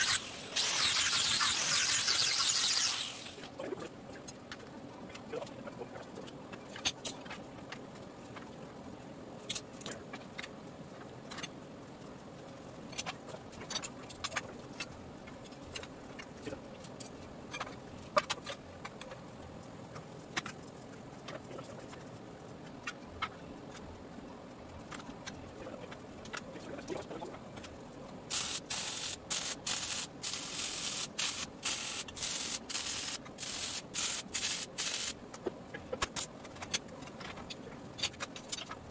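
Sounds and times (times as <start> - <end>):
arc welding crackling hisses: 0.0 - 3.5, 28.3 - 35.2.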